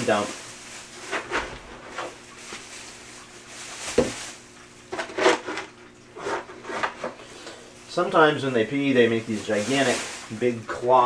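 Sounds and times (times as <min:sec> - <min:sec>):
scoop scraping cat litter: 0:08.7 - 0:11.0.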